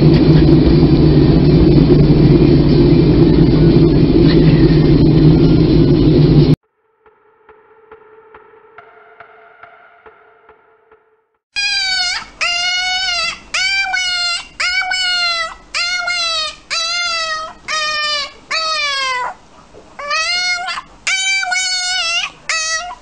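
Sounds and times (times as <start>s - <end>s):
puppy yelping: 11.6s - 19.4s, 20.0s - 23.0s.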